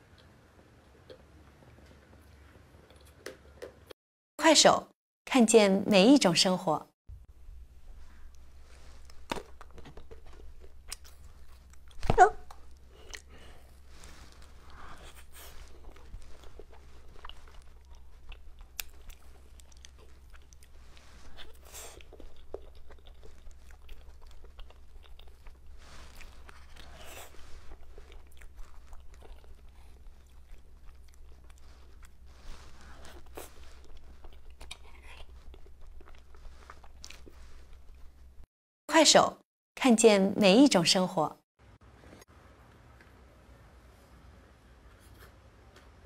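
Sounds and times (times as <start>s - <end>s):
person chewing and crunching: 8.2s - 38.4s.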